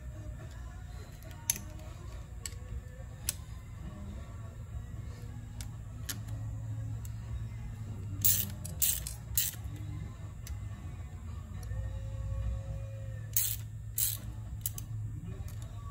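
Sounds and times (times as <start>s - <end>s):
low hum: 0.0s - 15.9s
screwdriver clicking on screws: 8.2s - 9.7s, 13.3s - 14.9s.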